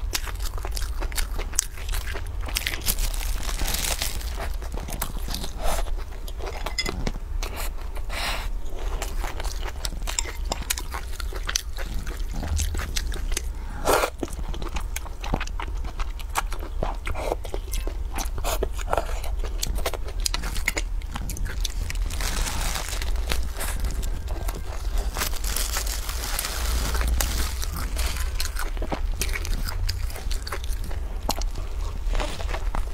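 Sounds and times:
crunchy chewing: 0:00.0 - 0:32.9
steady low hum: 0:00.0 - 0:32.9
plastic wrap rustling: 0:02.7 - 0:05.5, 0:21.6 - 0:28.8.

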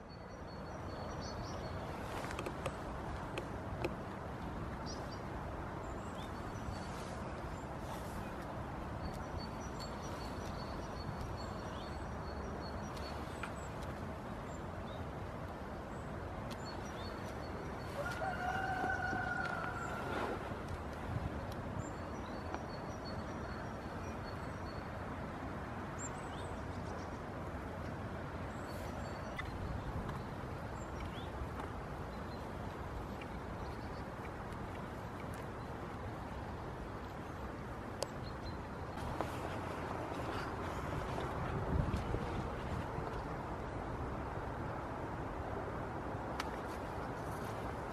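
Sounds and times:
outdoor background noise: 0:00.0 - 0:47.9
drawn-out level call: 0:17.8 - 0:20.5.

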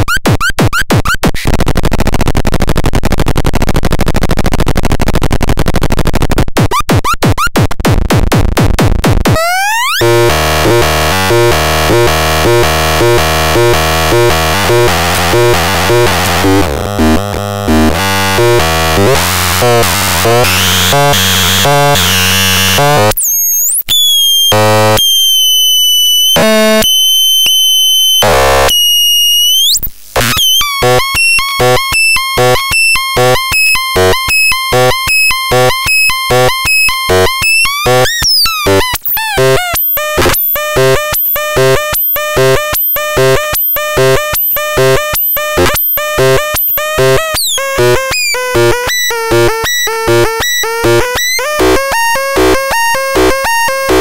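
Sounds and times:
harsh synthesizer buzzing: 0:09.2 - 0:54.0
synthesizer whistling tones: 0:20.3 - 0:54.0
short electronic bleeps: 0:20.4 - 0:54.0.

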